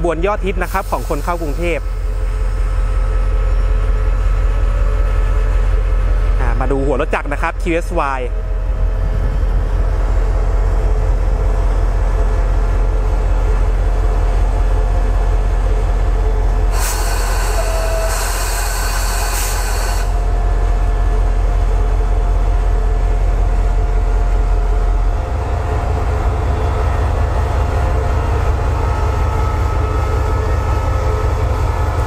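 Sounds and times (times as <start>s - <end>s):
air release hiss: 16.7s - 20.2s.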